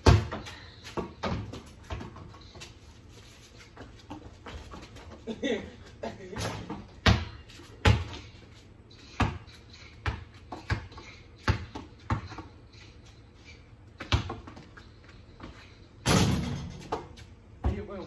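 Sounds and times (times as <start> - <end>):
basketball bouncing on wet concrete: 0.0 - 2.0, 6.7 - 8.2, 14.0 - 14.6.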